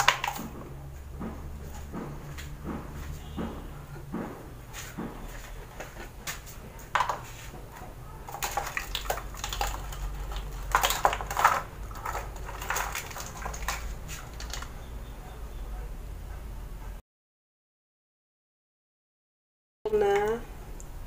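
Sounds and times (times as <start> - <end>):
kitchen items clinking on counter: 6.8 - 7.3, 8.2 - 14.8.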